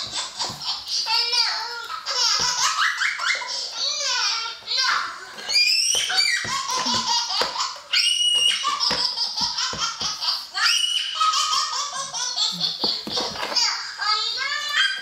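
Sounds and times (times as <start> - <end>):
baby giggling: 6.1 - 10.5, 11.2 - 13.6.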